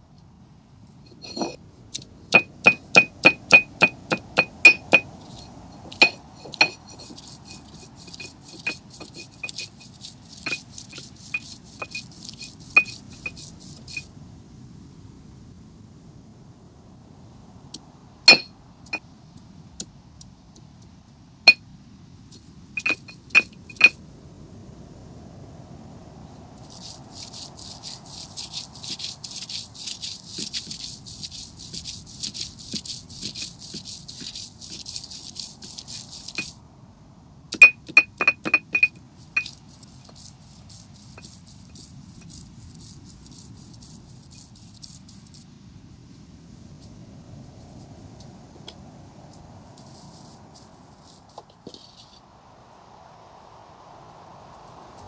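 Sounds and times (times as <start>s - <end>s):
gritty stone rasping: 1.1s - 1.6s, 2.3s - 14.1s, 18.3s - 18.5s, 22.8s - 23.9s, 26.7s - 36.5s, 37.6s - 45.3s
stone clinks and knocks: 1.1s - 1.6s, 2.3s - 14.0s, 18.3s - 19.0s, 22.8s - 24.0s, 37.5s - 39.5s.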